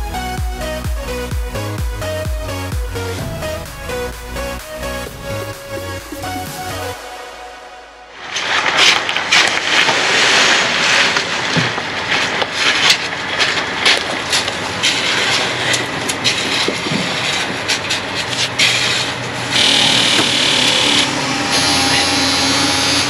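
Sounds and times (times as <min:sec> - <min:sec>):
rake scraping wet concrete: 0:08.2 - 0:23.0.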